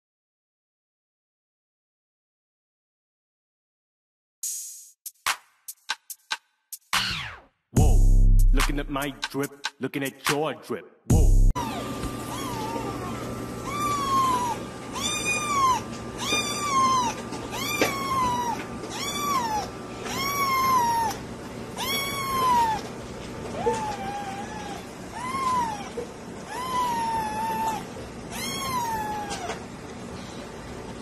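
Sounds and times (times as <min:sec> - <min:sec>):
kitten meowing: 0:11.6 - 0:21.2, 0:21.8 - 0:22.9, 0:23.6 - 0:29.6.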